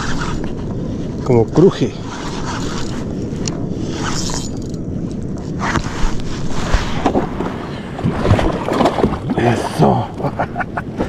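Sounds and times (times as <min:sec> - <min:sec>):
wind buffeting microphone: 0:00.0 - 0:11.0
fishing reel creaking: 0:01.4 - 0:05.6
knocks and splashes: 0:07.0 - 0:09.8.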